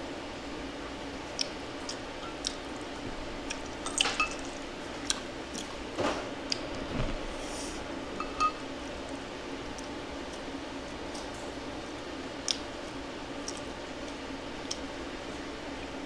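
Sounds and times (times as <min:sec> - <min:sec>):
wet squishy eating sounds: 0:01.3 - 0:05.8, 0:13.4 - 0:14.9
utensils clinking against dishes: 0:03.8 - 0:04.5, 0:08.2 - 0:08.6.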